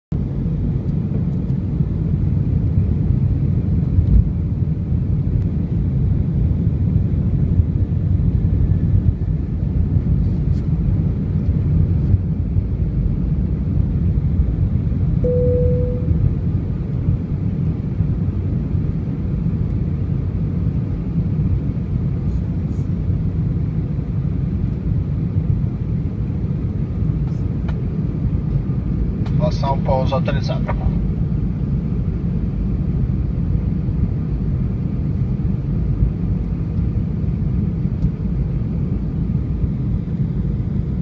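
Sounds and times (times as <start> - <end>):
aircraft cabin engine rumble: 0.1 - 41.0
short cabin tone: 15.2 - 16.3.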